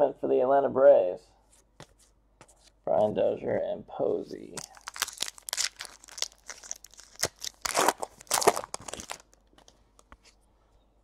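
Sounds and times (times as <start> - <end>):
foil wrapper crinkling and tearing: 4.6 - 9.7.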